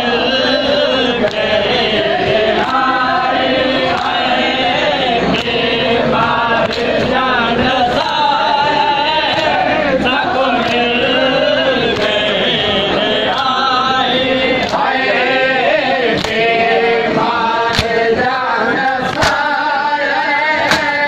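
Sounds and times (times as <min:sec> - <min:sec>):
men chanting in chorus: 0:00.0 - 0:21.0
hand slaps on chest: 0:19.1 - 0:19.4, 0:20.7 - 0:20.9.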